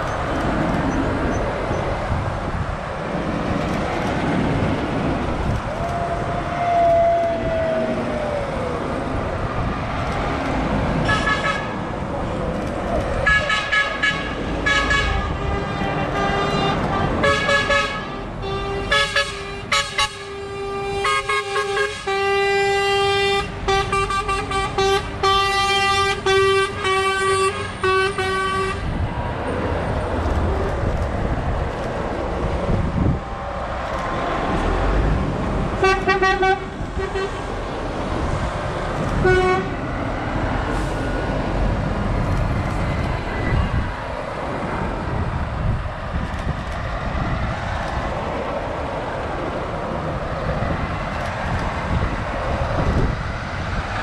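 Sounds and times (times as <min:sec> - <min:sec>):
diesel engines running: 0:00.0 - 0:54.0
truck horns blasting: 0:11.0 - 0:11.8, 0:13.2 - 0:28.9, 0:35.8 - 0:37.5, 0:39.2 - 0:39.8.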